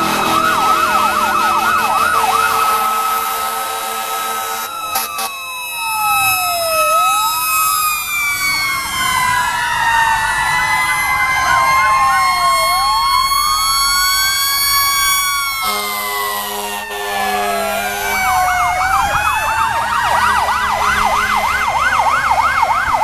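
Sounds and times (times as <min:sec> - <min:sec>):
deep horn: 0:00.0 - 0:05.3, 0:15.6 - 0:21.9
sirens wailing: 0:00.0 - 0:23.0.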